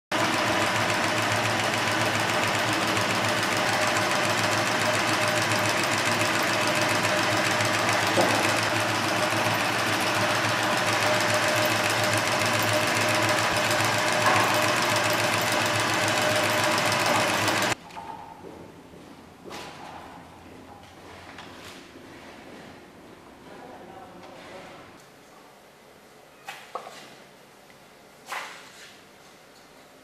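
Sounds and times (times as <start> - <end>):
embroidery machine whirring: 0.1 - 17.8.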